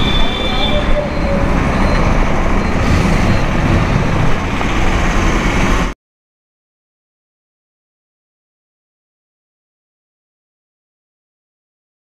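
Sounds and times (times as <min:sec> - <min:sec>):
highway traffic rumble: 0:00.0 - 0:06.0.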